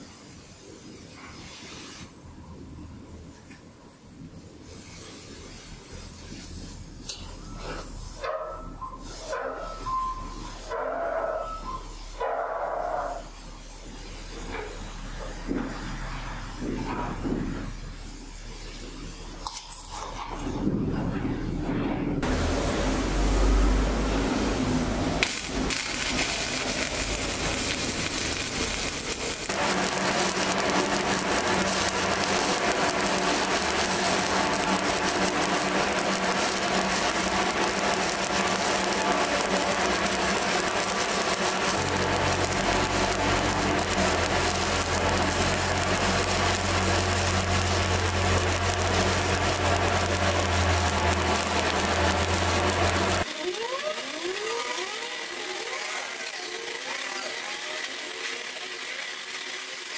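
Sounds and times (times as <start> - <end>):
welding arc crackling sizzle: 0.0 - 59.9
low hum: 20.4 - 53.4.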